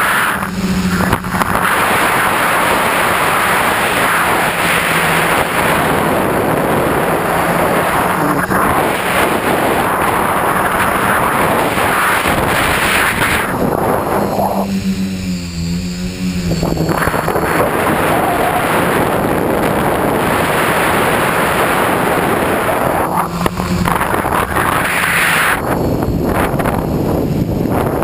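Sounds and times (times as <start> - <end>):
drone motors and propellers humming: 0.0 - 28.0
wind rushing over microphone: 0.0 - 28.0.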